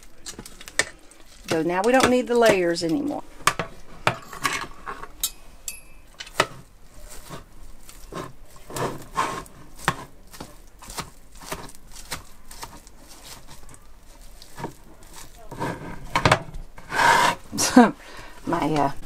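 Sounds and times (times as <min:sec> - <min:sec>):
cutlery scraping on cutting board: 0:03.5 - 0:05.4, 0:06.2 - 0:13.6, 0:14.5 - 0:17.4.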